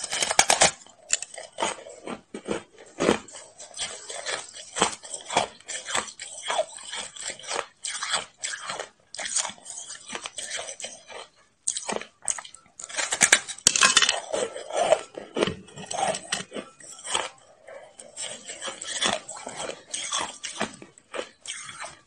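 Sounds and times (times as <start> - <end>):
ice being chewed crunching: 0.0 - 22.0.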